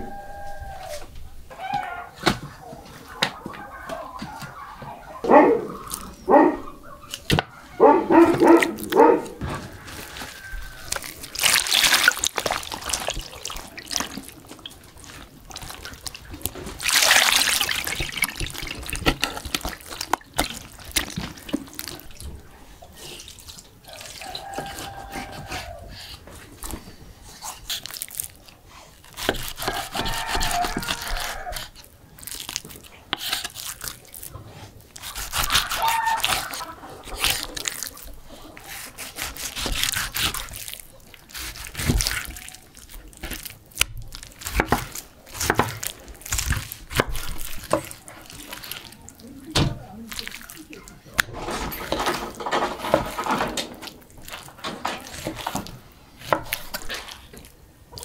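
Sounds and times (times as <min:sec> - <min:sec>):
wet meat squelching in metal bowl: 0:03.9 - 0:06.3, 0:08.2 - 0:58.0
knife slicing meat on wooden board: 0:29.1 - 0:31.8, 0:38.6 - 0:40.6.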